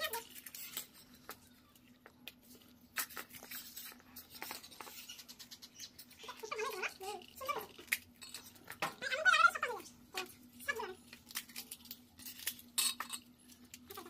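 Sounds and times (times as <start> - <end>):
crisp shells cracking: 11.0 - 14.0.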